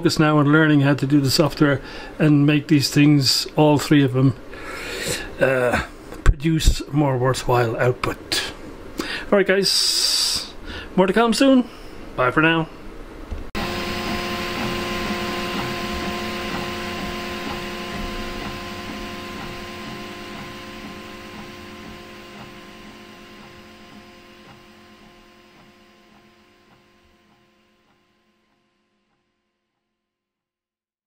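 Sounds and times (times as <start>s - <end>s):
stepper motors whining: 13.6s - 28.0s.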